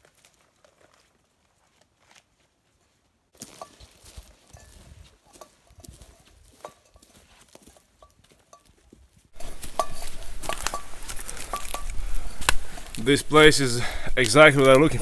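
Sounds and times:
footsteps crunching on pine needles: 0.0 - 2.7, 3.4 - 15.0
metallic clinks of gear: 3.4 - 8.8.

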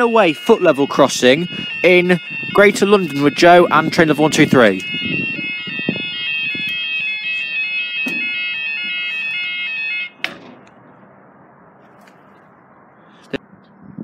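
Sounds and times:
two-tone warning alarm: 0.0 - 10.4
barrier knock: 8.0 - 9.0.

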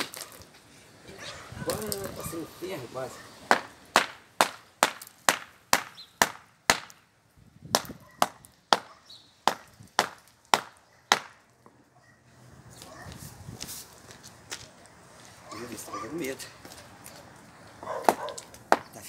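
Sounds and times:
concrete crumbling: 0.0 - 0.5
hammer striking concrete: 3.5 - 7.0, 7.7 - 11.4, 18.0 - 19.0
faint shuffling: 12.2 - 18.0.

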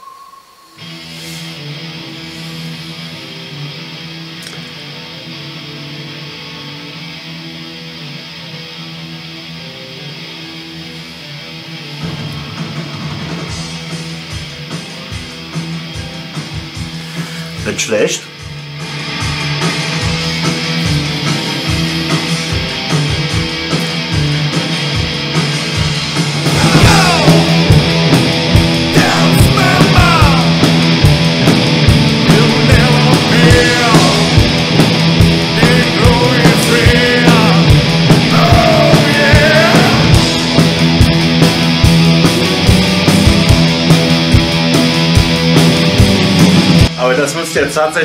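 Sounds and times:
distorted electric guitar riff: 0.0 - 47.7
bass guitar: 0.8 - 48.0
driving drum hits: 18.4 - 47.0.

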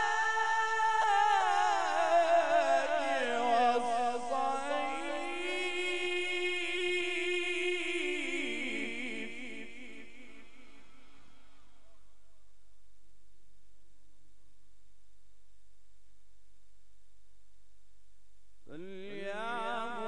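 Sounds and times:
man reciting in melismatic chant: 0.0 - 11.9, 18.7 - 20.0.

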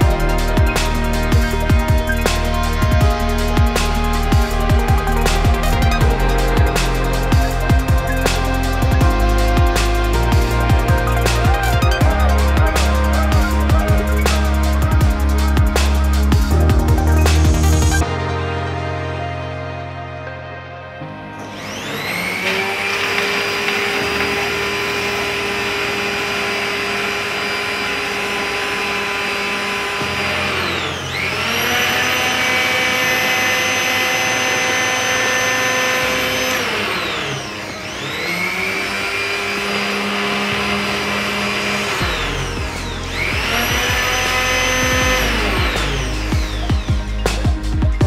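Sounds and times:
electric pump motor whining: 0.0 - 18.1, 21.4 - 48.0.

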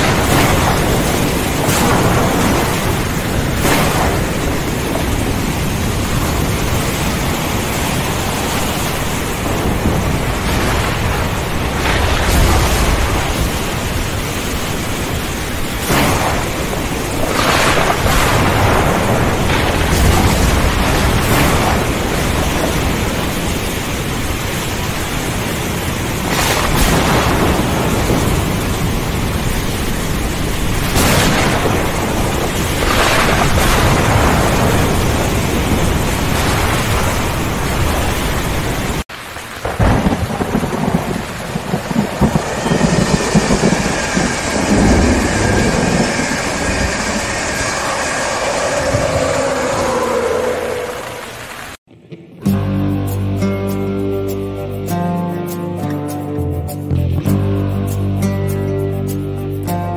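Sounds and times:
rain hissing: 0.0 - 51.9
thunder cracking and rumbling: 0.0 - 51.9.

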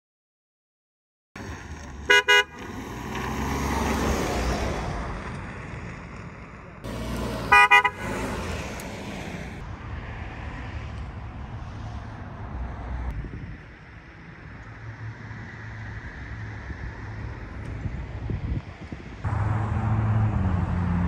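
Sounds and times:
truck driving: 1.4 - 11.4, 12.0 - 21.0
wind: 1.4 - 21.0
truck horn tooting: 2.1 - 2.7, 7.4 - 8.3.

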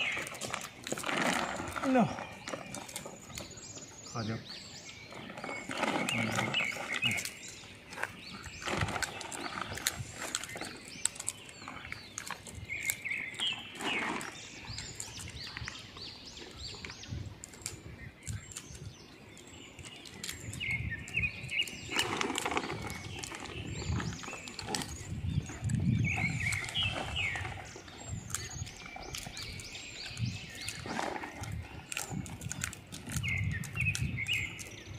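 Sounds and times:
plastic bag rustling: 0.0 - 3.6, 21.8 - 28.0.

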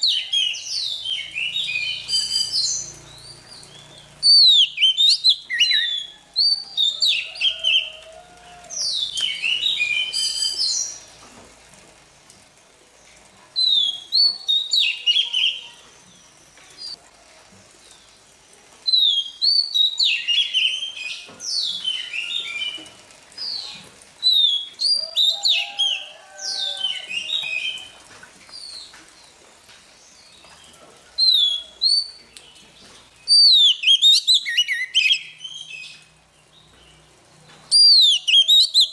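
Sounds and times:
bird singing whistled notes: 0.0 - 8.0, 8.9 - 11.0, 13.6 - 15.7, 18.9 - 22.8, 24.2 - 26.1, 33.2 - 36.1, 37.7 - 38.9.

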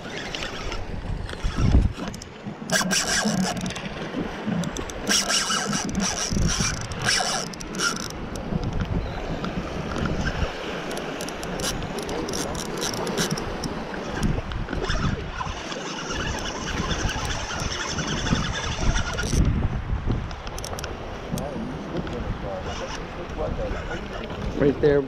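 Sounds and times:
fishing reel clicking and scraping: 0.0 - 8.9, 9.9 - 19.5, 20.4 - 20.9, 22.6 - 23.1
wind rumbling on microphone: 0.0 - 25.0.

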